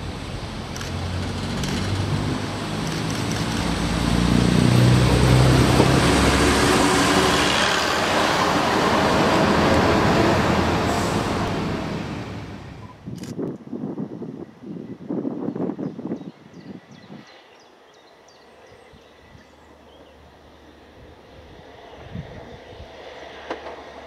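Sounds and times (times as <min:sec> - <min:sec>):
diesel engine drone: 0:00.0 - 0:13.0
wheel and rail noise: 0:00.0 - 0:13.0.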